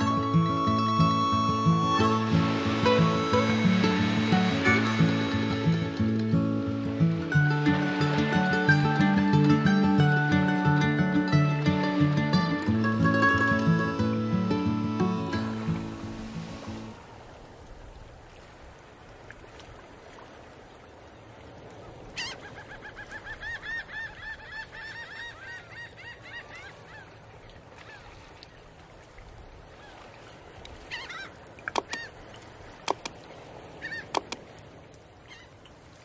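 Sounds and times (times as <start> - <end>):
bird calling rapid notes: 0.0 - 6.0, 30.9 - 32.1
sharp clicks: 31.7 - 32.0, 32.9 - 33.2, 34.1 - 34.4.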